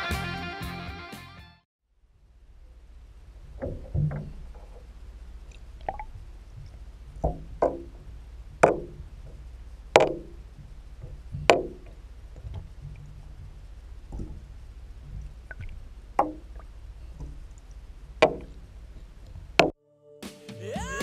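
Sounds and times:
steady low hum: 1.9 - 19.7.

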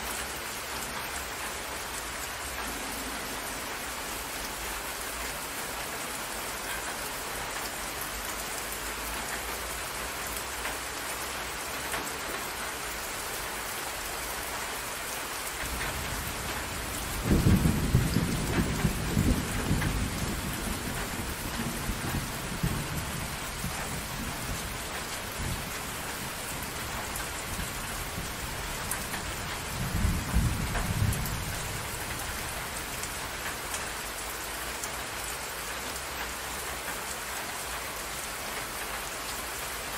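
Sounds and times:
rain falling on water: 0.0 - 39.9
thunder rumbling: 15.8 - 33.1.

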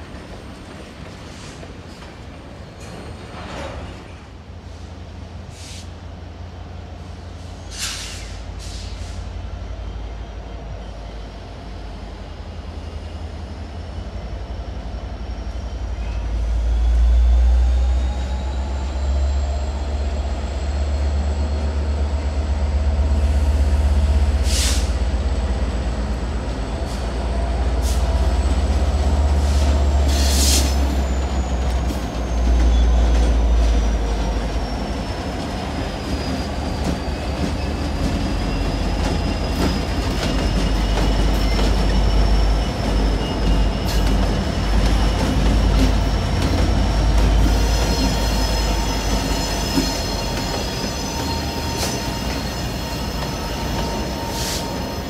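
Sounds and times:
diesel locomotive engines rumbling: 0.0 - 55.0
high wheel squeal: 15.0 - 55.0
sharp wheel screeches: 45.0 - 55.0.

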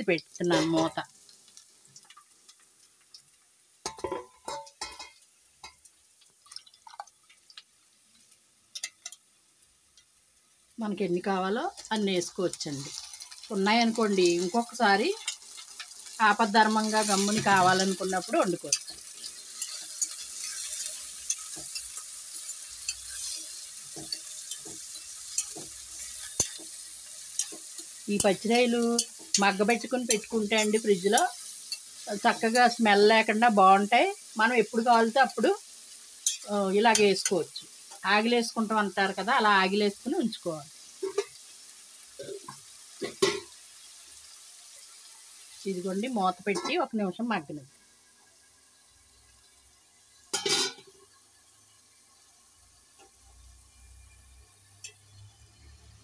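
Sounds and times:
food sizzling in oil: 0.0 - 56.0
metal spatula scraping pan: 16.7 - 32.8.

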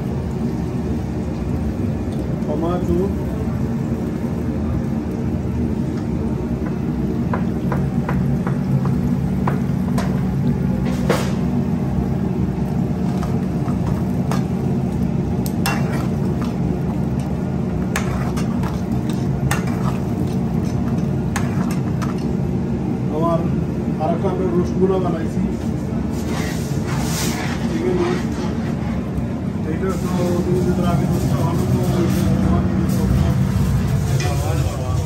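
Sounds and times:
gas range rumble: 0.0 - 35.0
metal spoon scraping a frying pan: 15.6 - 16.2, 17.9 - 20.0, 26.2 - 29.0.

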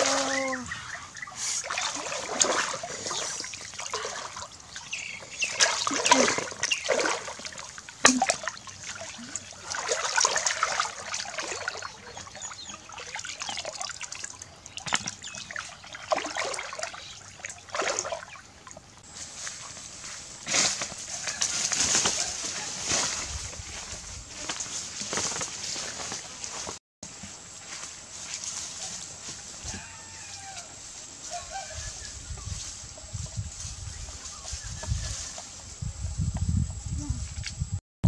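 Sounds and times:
water splashing and sloshing: 0.0 - 26.8
water trickling: 1.2 - 19.0.

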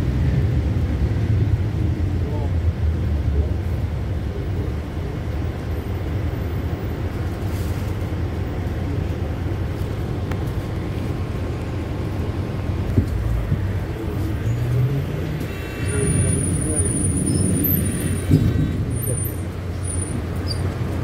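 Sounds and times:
bus engine rumble: 0.0 - 21.0
road noise: 0.0 - 21.0.

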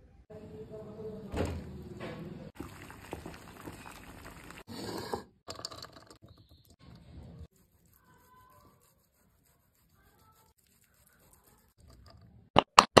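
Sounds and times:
water in a pot: 2.5 - 7.0.

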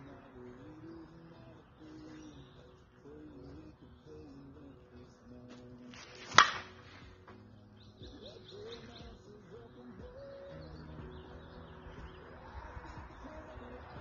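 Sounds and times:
short high bird chirps: 0.8 - 5.0, 7.4 - 12.6.

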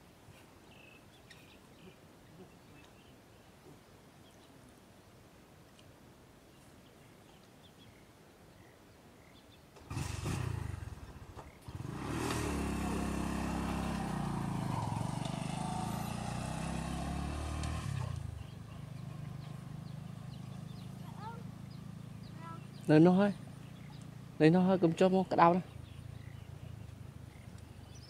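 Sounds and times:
small engine running: 9.8 - 22.8.

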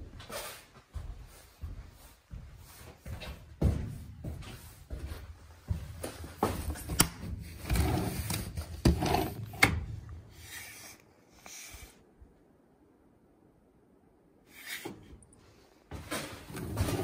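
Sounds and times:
sliding window rubbing and scraping: 7.4 - 9.6, 16.1 - 17.0.

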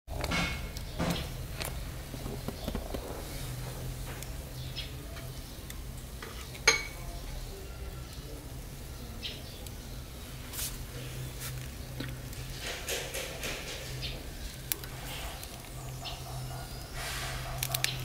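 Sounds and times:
grill crackling and popping: 0.1 - 18.0.

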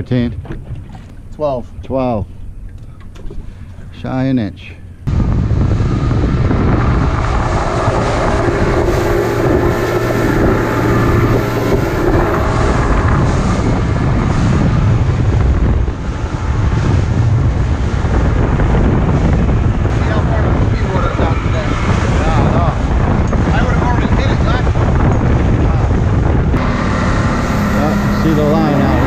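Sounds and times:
wind buffeting microphone: 0.0 - 29.0
outboard motor droning: 4.9 - 29.0
water rushing off hull: 5.1 - 24.4, 26.6 - 29.0.

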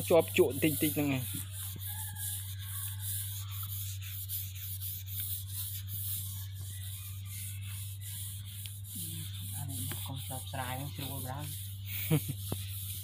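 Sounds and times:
paintbrush swishing on wood: 0.0 - 13.0
steady low hum: 0.0 - 13.0.

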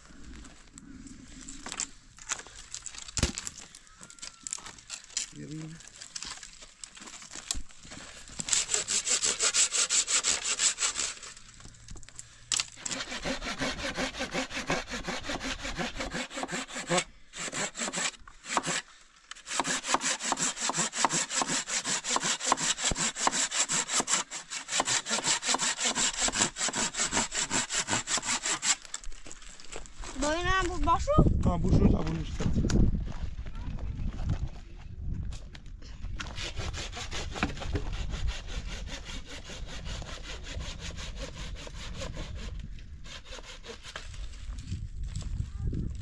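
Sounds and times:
handsaw cutting wood: 8.4 - 11.4, 12.8 - 28.9, 36.2 - 44.2.

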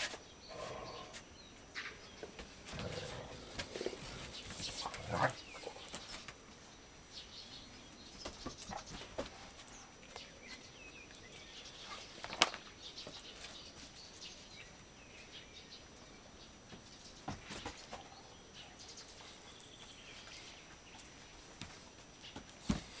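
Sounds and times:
dogs scuffling on mats: 2.1 - 6.4.

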